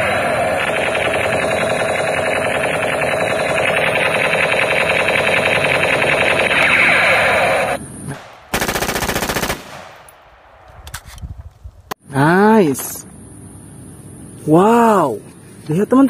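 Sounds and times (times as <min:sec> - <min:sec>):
electronic machine-gun sound effect: 0:00.0 - 0:09.6
automatic gunfire burst: 0:00.0 - 0:10.0.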